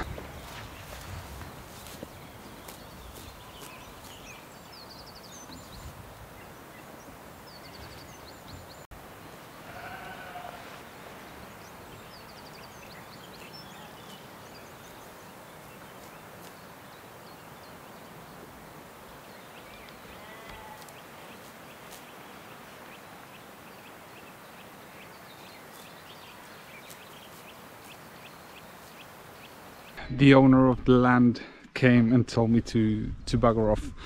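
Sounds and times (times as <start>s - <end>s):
outdoor background hiss: 0.0s - 33.7s
sheep bleating: 9.6s - 10.8s, 20.1s - 20.9s.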